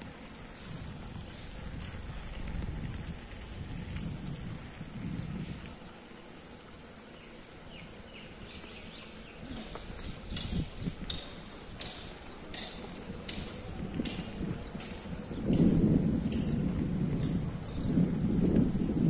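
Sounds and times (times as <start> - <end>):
footsteps on paved path: 0.0 - 19.0.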